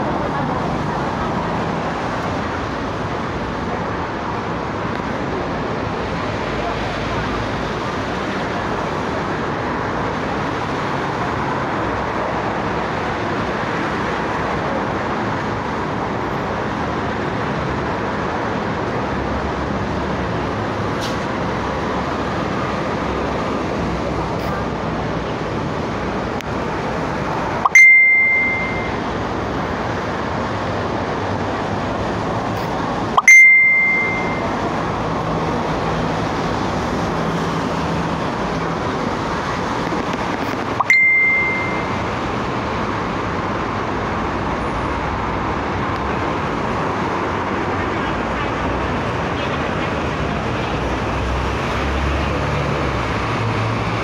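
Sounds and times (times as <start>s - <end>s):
road traffic noise: 0.0s - 54.0s
loud bell-like ding: 27.7s - 29.0s, 33.2s - 34.6s, 40.8s - 42.0s.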